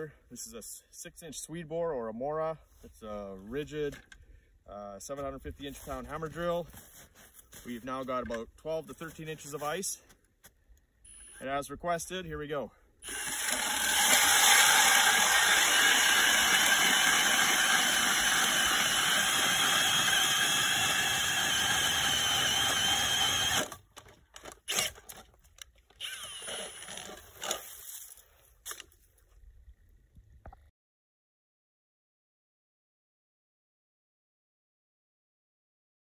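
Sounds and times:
auger blades cutting ice: 13.0 - 23.8, 24.4 - 25.3
drill whining: 13.0 - 23.8, 24.4 - 25.2, 25.9 - 27.7.

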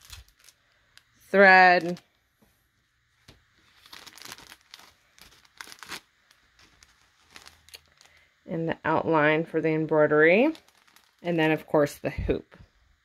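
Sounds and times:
fabric rustling and crinkling: 0.0 - 2.4, 3.1 - 8.2, 10.0 - 12.4.

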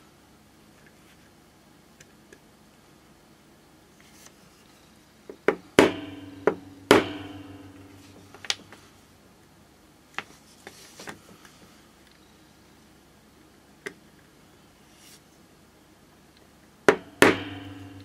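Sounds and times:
sharp hammer strikes ringing metal: 5.8 - 8.3, 17.0 - 18.0.

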